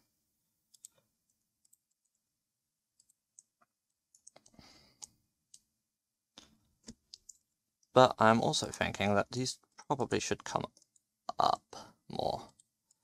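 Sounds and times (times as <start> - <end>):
faint mouse and keyboard clicks: 0.7 - 2.2, 6.4 - 7.5.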